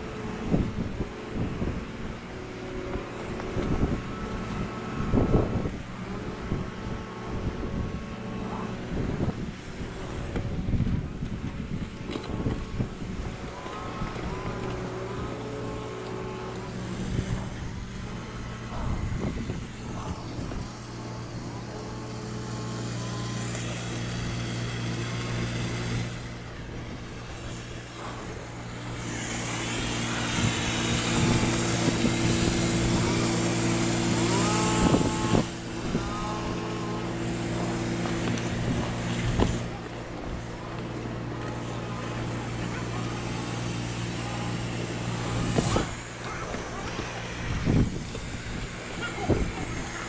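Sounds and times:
pressure washer engine hum: 0.0s - 50.0s
water spraying onto roof tiles: 0.0s - 50.0s.

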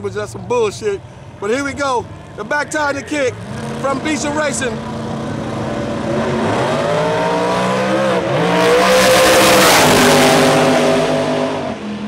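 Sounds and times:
drag cars accelerating: 2.0s - 12.0s.

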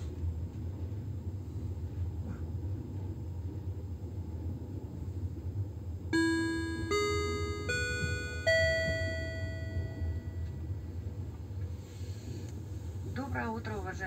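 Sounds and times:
train rumbling: 0.0s - 14.0s
four-note rising chime: 6.2s - 10.6s.

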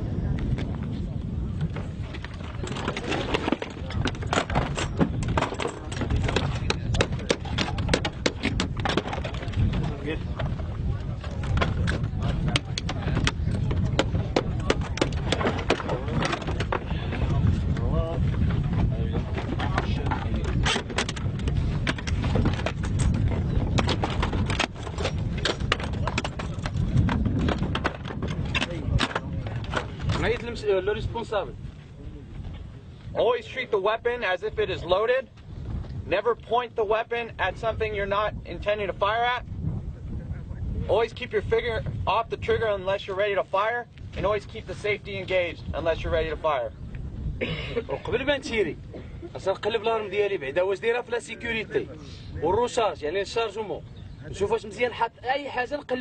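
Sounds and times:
wind rumble on the microphone: 0.0s - 56.0s
crates clacking and knocking: 2.4s - 10.5s, 11.2s - 16.9s, 19.1s - 30.4s.

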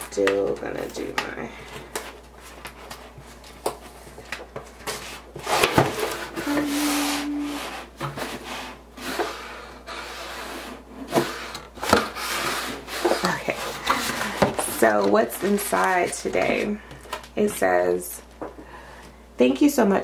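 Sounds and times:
cardboard box rubbing and scraping: 6.1s - 10.8s.

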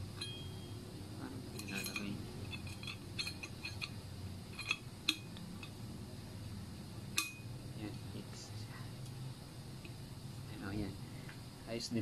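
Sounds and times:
metal lid clicking and clinking: 1.6s - 5.8s, 7.1s - 7.4s.

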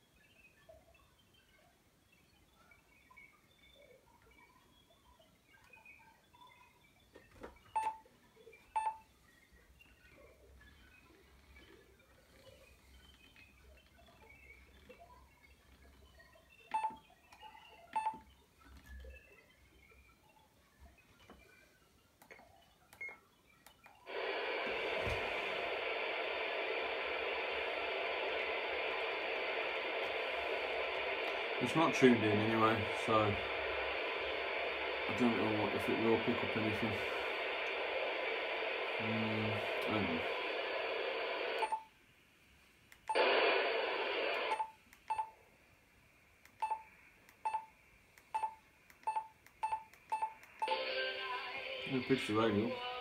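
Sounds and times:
radio static hiss: 8.5s - 16.8s, 23.9s - 53.0s.

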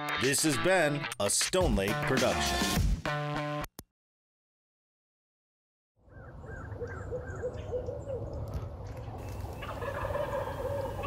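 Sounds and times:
wild turkey calling: 6.0s - 11.0s.

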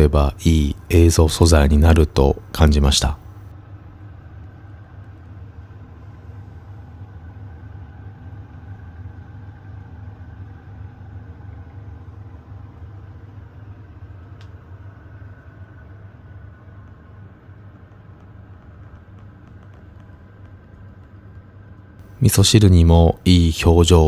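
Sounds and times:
steady low rumble: 0.0s - 24.0s
faint click: 14.4s - 14.6s.

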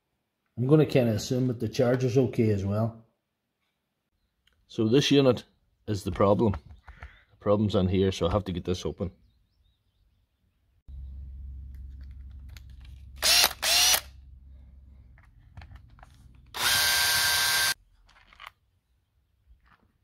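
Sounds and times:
low hum: 10.9s - 16.7s
cordless drill whining: 13.2s - 14.2s, 16.4s - 17.8s.

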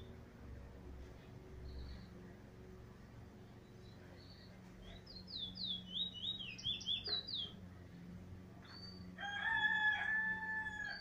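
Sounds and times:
bullfinch whistling song: 3.8s - 7.6s
rooster crowing: 9.2s - 11.0s.

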